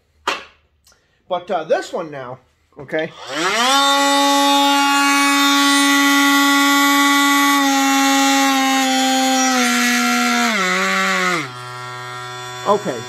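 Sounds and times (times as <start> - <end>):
oscillating multi-tool buzzing: 3.1 - 13.0.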